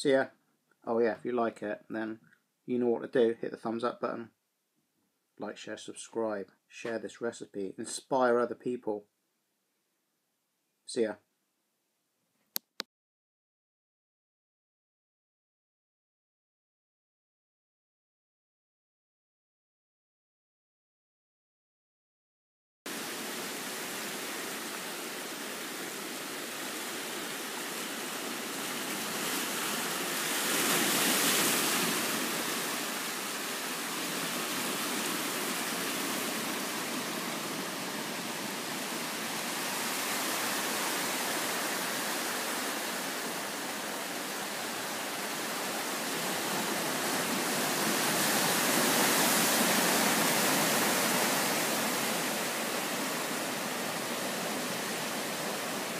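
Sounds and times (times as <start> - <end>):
sea surf breaking over rocks: 22.9 - 55.9.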